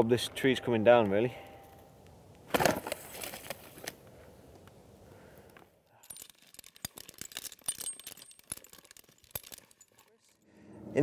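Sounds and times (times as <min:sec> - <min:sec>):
faint steady background noise: 0:00.0 - 0:11.0
metal climbing hardware clinking: 0:05.9 - 0:10.6.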